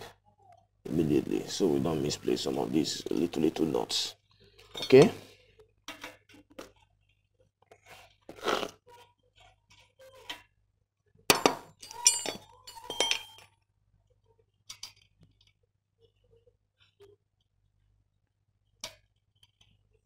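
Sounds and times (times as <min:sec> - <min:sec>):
metal tools clinking on nuts: 0:04.7 - 0:05.2, 0:11.4 - 0:13.5.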